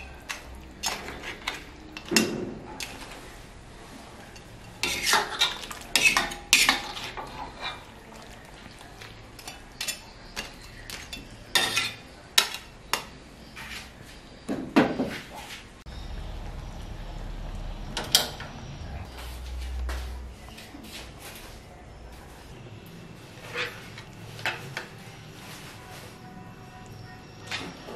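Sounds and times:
metal ladle scraping a wok: 0:04.4 - 0:07.8, 0:23.3 - 0:26.1
steady low hum: 0:15.9 - 0:27.3.

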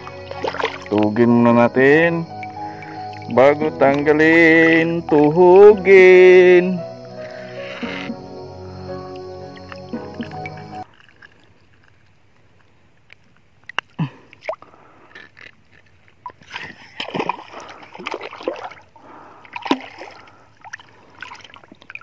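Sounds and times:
water splashing against boat: 0:00.0 - 0:06.2, 0:14.3 - 0:22.0.

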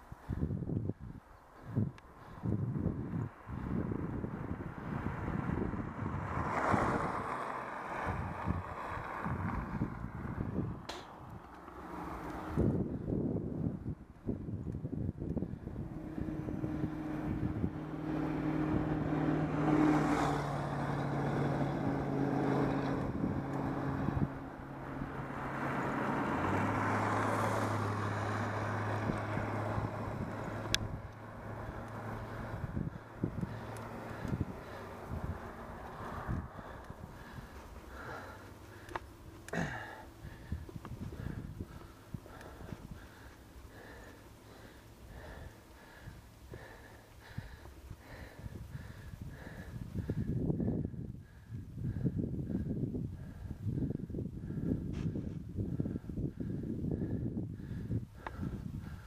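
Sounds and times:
passing motor traffic: 0:00.0 - 0:59.0
wind buffeting microphone: 0:00.0 - 0:59.0.

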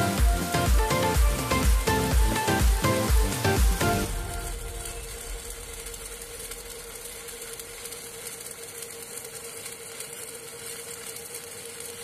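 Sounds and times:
steady mid-pitched tone: 0:00.0 - 0:08.6
welding arc crackling hiss: 0:00.0 - 0:12.0.

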